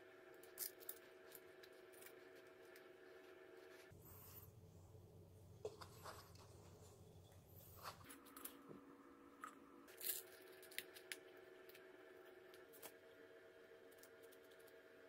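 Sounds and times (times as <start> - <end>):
small metal parts clicking: 0.4 - 2.1.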